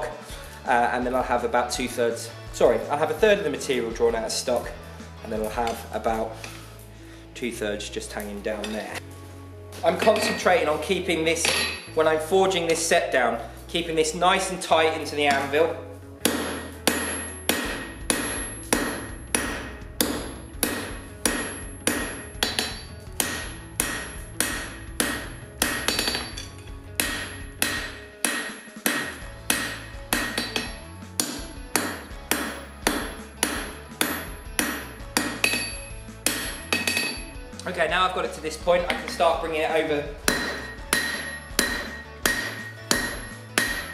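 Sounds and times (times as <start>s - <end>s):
hammer striking steel on anvil: 9.9s - 10.7s, 11.3s - 12.1s, 16.2s - 37.4s, 38.8s - 39.4s, 40.2s - 43.9s
anvil ringing: 11.4s - 12.0s, 16.2s - 37.4s, 40.3s - 43.9s.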